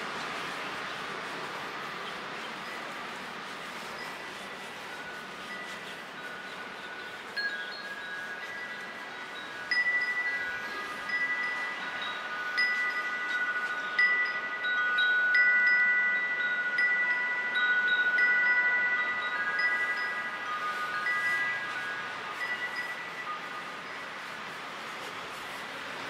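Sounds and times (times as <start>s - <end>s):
chimes ringing: 3.8s - 24.5s.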